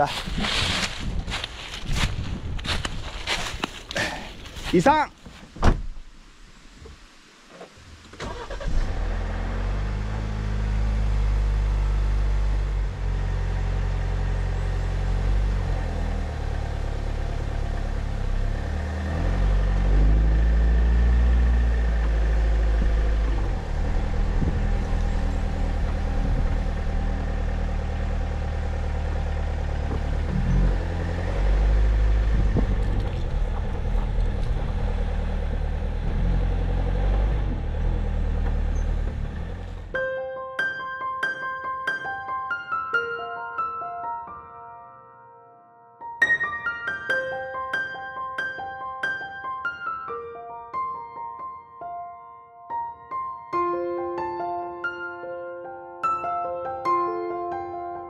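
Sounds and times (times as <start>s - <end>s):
road noise: 0.0s - 40.0s
car engine humming: 8.2s - 40.0s.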